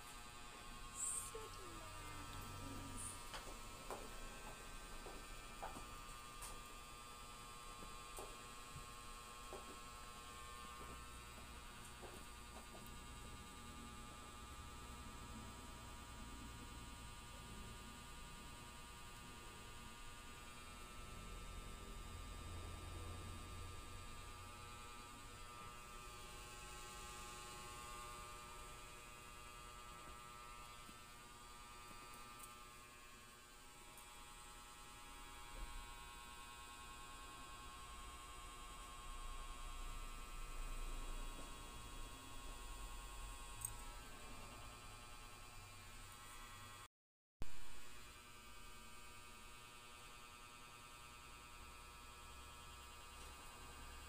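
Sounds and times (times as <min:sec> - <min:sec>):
electrical hum: 0:00.0 - 0:46.8.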